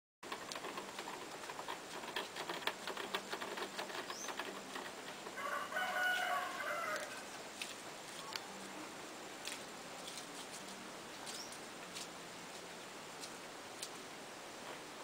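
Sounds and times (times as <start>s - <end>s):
rooster crowing: 5.3s - 7.3s.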